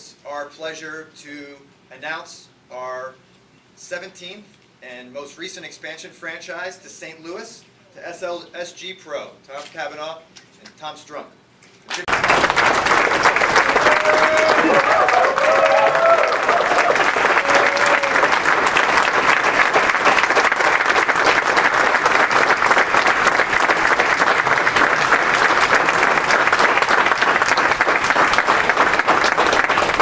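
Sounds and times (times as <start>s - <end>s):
audience applauding: 11.9s - 30.0s.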